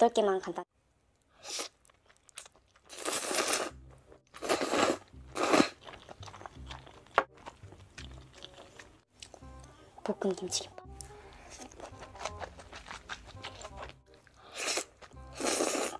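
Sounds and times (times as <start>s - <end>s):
noodles slurped: 1.4s - 3.8s, 11.5s - 15.9s
chewing: 1.6s - 3.7s, 4.4s - 9.7s, 10.9s - 15.9s.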